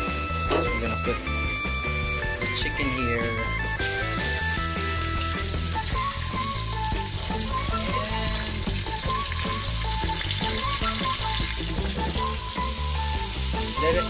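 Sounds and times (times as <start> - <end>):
background music: 0.0 - 14.0
chicken sizzling in oil: 3.8 - 14.0.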